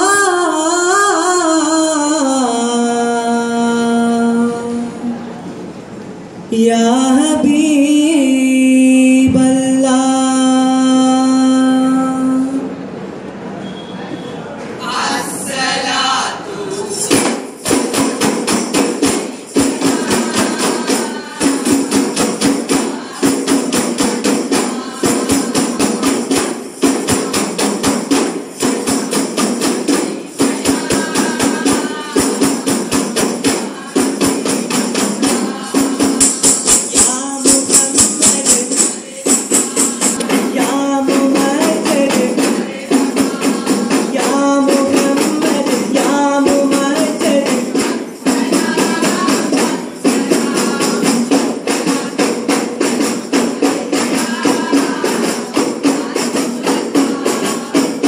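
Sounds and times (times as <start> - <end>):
people chanting: 14.2 - 58.0
frame drums beaten by hand: 17.0 - 58.0.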